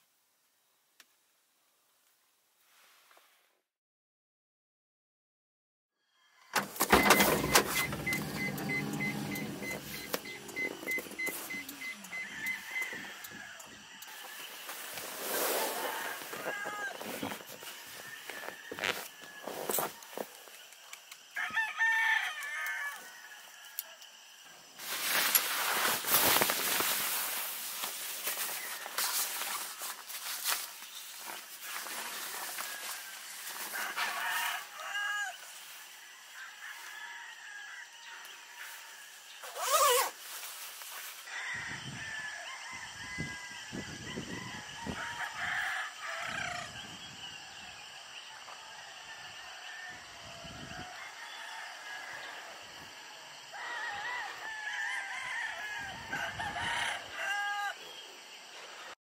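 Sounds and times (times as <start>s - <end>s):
rooster crowing: 6.0s - 20.5s, 21.1s - 24.4s, 31.7s - 40.1s, 41.2s - 58.3s
close rustling: 14.1s - 20.4s, 24.8s - 34.1s.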